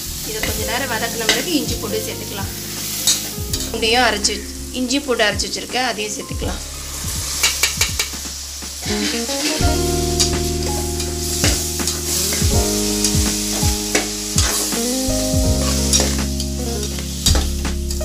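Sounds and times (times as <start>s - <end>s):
food sizzling: 0.0s - 18.0s.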